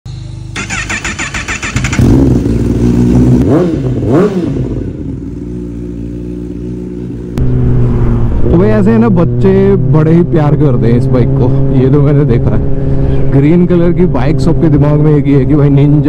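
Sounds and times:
motorcycle engine revving and idling: 0:00.1 - 0:16.0
motorcycle starter cranking: 0:00.5 - 0:02.6.

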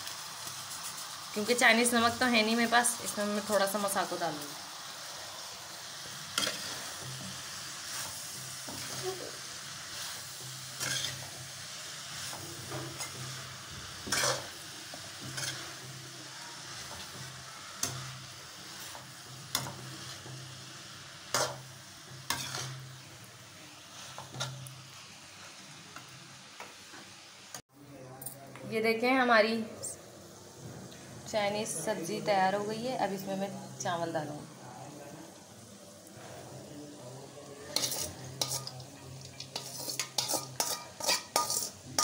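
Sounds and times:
vegetables sizzling in a pan: 0:00.0 - 0:27.7, 0:28.8 - 0:42.0
steel spatula scraping a pan: 0:06.3 - 0:20.5, 0:21.3 - 0:23.0, 0:37.7 - 0:42.0.

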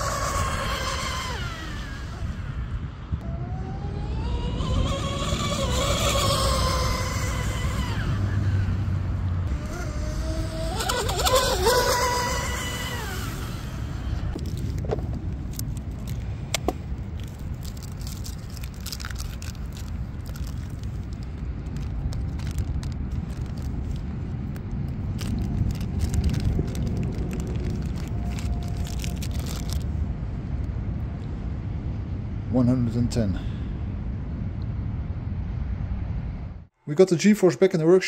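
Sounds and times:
speed boat motors whining past: 0:00.0 - 0:14.8
wind rumble on microphone: 0:00.0 - 0:36.7
plastic bag crinkling: 0:17.2 - 0:29.9.

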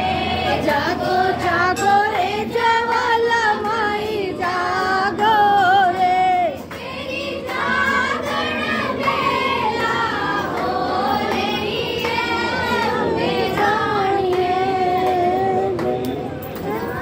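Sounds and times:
women singing together: 0:00.0 - 0:17.0.

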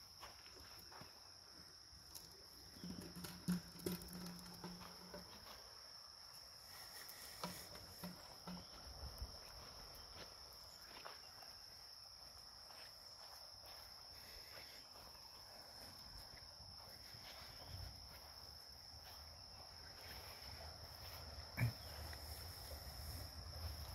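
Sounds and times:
insects trilling: 0:00.0 - 0:23.9
footsteps on grass: 0:06.7 - 0:23.9.

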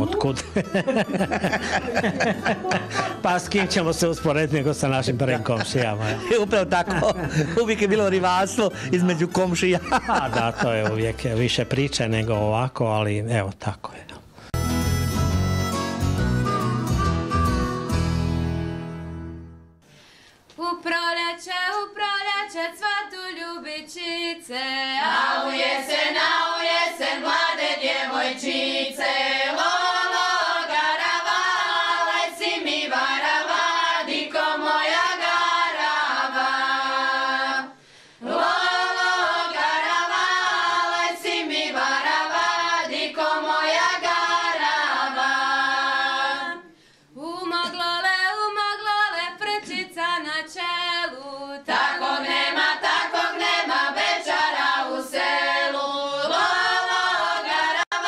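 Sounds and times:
women singing a cappella: 0:20.6 - 0:58.0.

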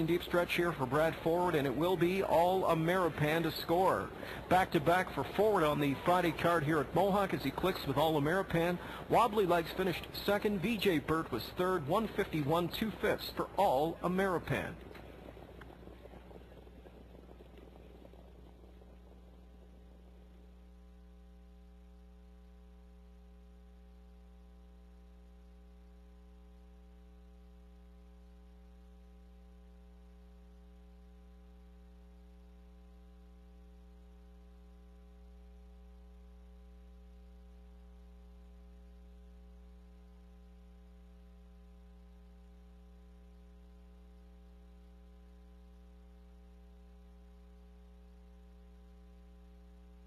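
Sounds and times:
faint hiss: 0:00.0 - 0:22.8
electrical mains hum: 0:00.0 - 0:50.0.

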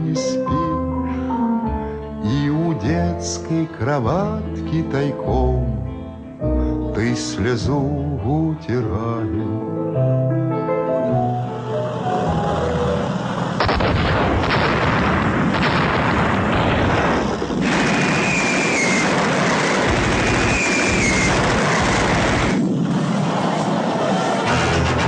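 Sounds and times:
music: 0:00.0 - 0:13.9, 0:24.4 - 0:25.0
explosions roaring: 0:11.9 - 0:25.0
sharp blasts: 0:12.3 - 0:25.0.

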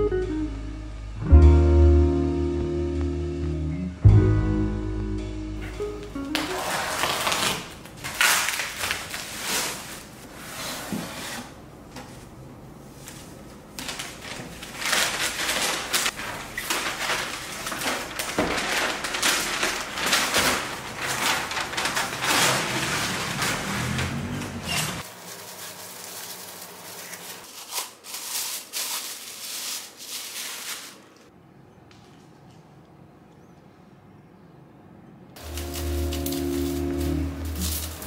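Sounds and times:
packing paper crinkling: 0:06.3 - 0:10.3, 0:13.1 - 0:24.3, 0:25.0 - 0:31.3, 0:35.4 - 0:38.0.

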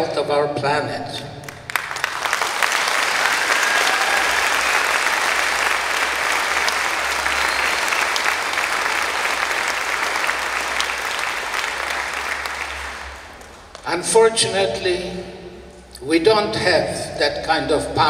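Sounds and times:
audience applauding: 0:01.4 - 0:14.0.

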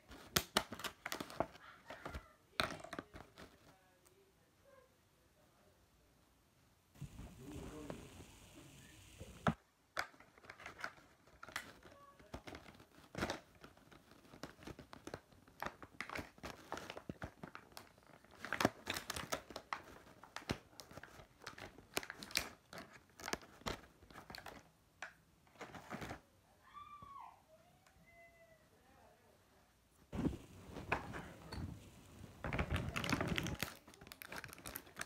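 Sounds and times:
plastic crinkling and clicking: 0:00.0 - 0:03.8, 0:09.4 - 0:26.2, 0:30.2 - 0:35.0.

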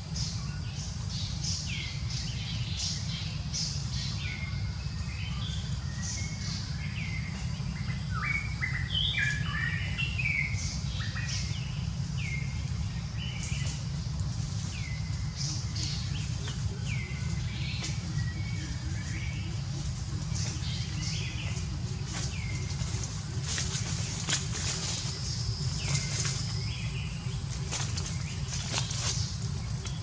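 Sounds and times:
birds chirping: 0:00.0 - 0:30.0
steady low rumble: 0:00.0 - 0:30.0.

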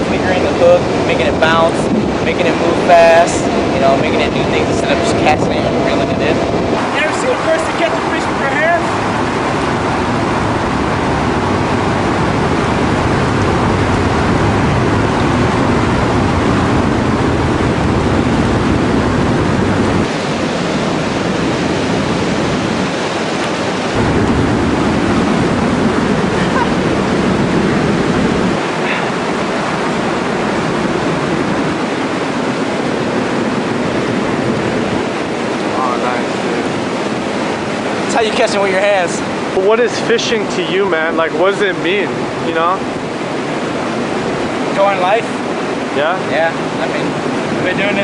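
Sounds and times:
wind rumble on microphone: 0:00.0 - 0:48.0
river water rushing over rocks: 0:20.0 - 0:48.0.

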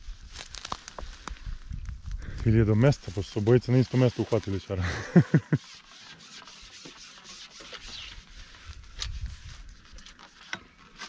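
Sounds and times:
rubbing and rustling: 0:02.7 - 0:11.0.

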